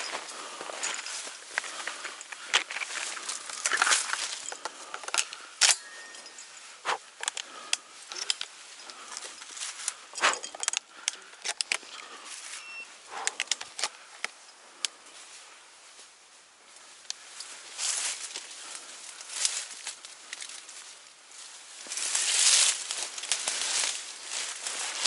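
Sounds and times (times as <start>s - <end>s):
footsteps crunching dry leaves: 0.0s - 10.4s, 16.8s - 25.0s.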